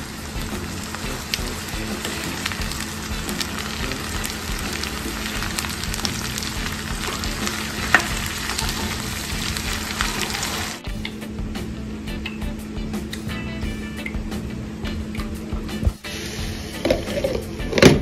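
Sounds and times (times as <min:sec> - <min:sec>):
vegetables sizzling in oil: 0:00.0 - 0:10.9.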